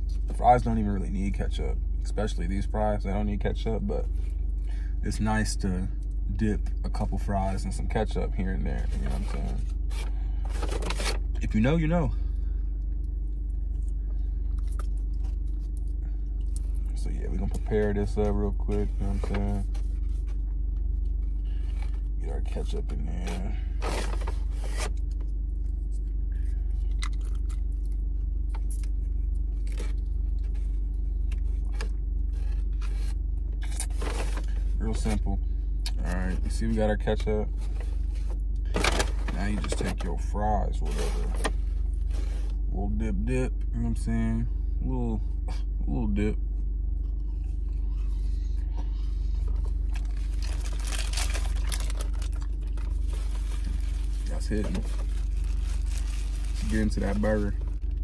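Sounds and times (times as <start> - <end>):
car engine idling hum: 0.0 - 58.0
packet and paper crinkling: 37.6 - 40.1, 49.5 - 58.0.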